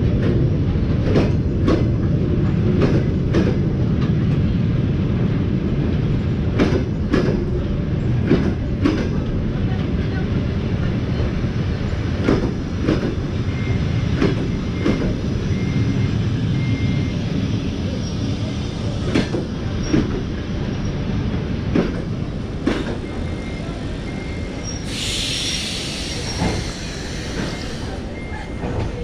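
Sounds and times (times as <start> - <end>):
train coaches rumbling: 0.0 - 29.0
sudden hiss: 24.8 - 28.0.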